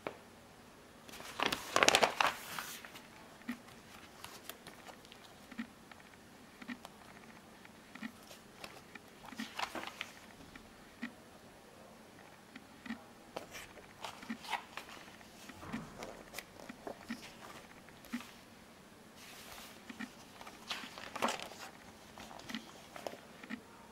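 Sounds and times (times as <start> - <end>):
paper sheets rustling: 1.1 - 5.4, 8.2 - 10.3, 13.4 - 18.4, 19.2 - 23.3
booklet pages turning: 1.1 - 10.4, 13.4 - 18.4, 19.2 - 23.6.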